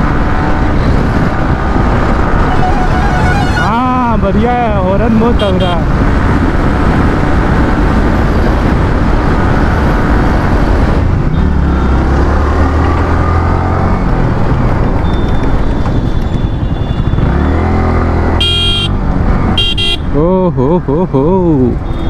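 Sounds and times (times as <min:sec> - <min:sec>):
wind noise on microphone: 0:00.0 - 0:20.2
vehicle horn: 0:02.4 - 0:03.8, 0:18.4 - 0:19.0, 0:19.6 - 0:20.1
motorcycle engine revving: 0:05.9 - 0:20.0.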